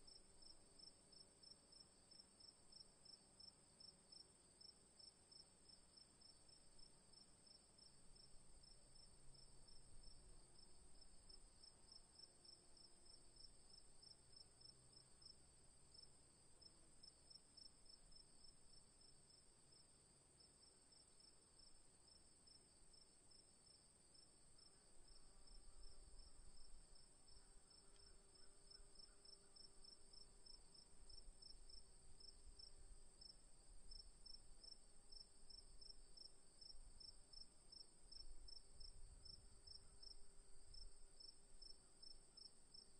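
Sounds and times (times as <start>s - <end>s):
crickets chirping: 20.9s - 42.9s.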